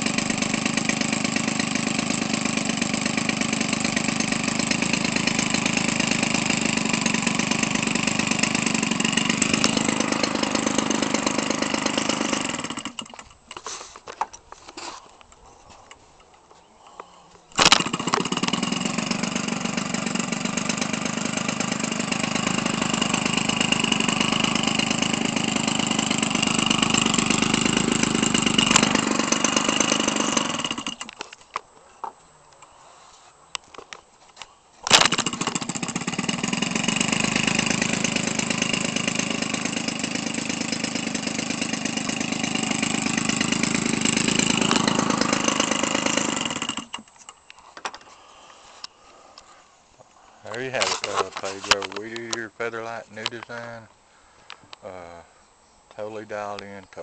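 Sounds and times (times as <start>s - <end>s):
two-stroke engine running: 0.0s - 13.3s, 17.6s - 31.2s, 34.9s - 47.1s.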